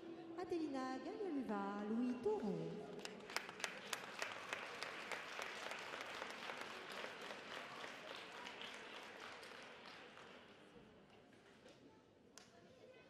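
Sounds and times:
audience applauding: 0:03.0 - 0:10.7.

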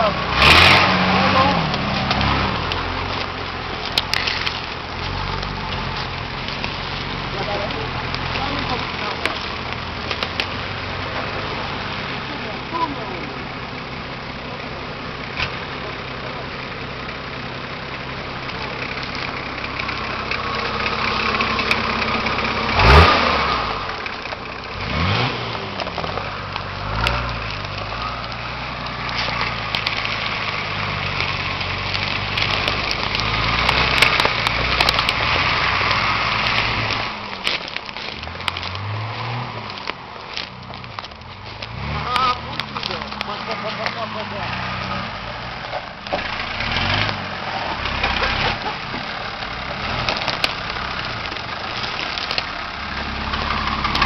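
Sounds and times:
engine idling and revving: 0:00.0 - 0:54.0.

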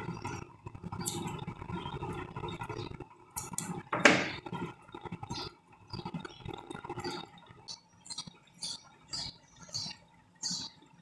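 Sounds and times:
knock: 0:04.0 - 0:04.4.

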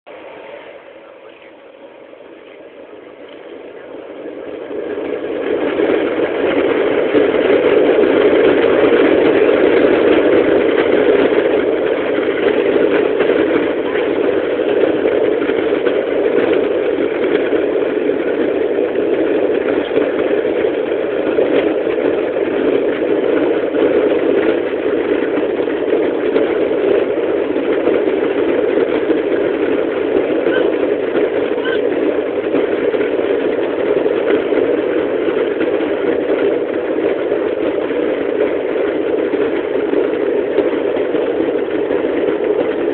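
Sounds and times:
jet engines spooling up: 0:00.1 - 0:42.9.

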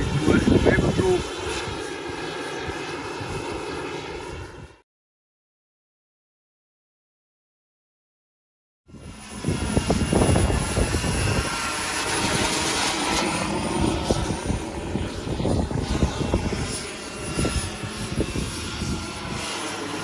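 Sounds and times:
high turbine whine: 0:00.0 - 0:04.8, 0:08.9 - 0:20.0
rotor fluttering rush: 0:00.0 - 0:04.8, 0:08.9 - 0:20.0.

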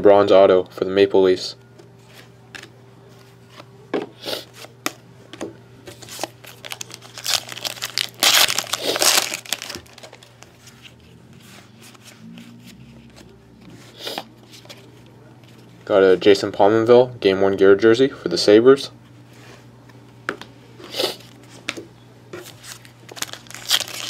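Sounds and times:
wrapper tearing and crinkling: 0:06.0 - 0:10.4, 0:22.6 - 0:24.0.

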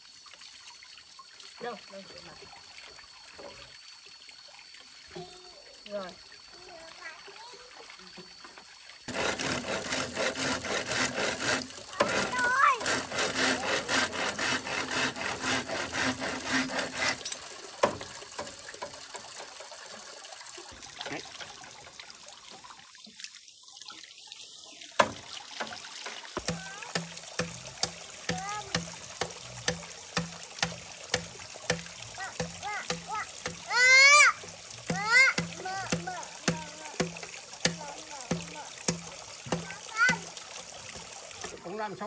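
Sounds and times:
rhythmic rasping strokes: 0:09.1 - 0:17.4, 0:26.4 - 0:33.9, 0:34.8 - 0:40.3.

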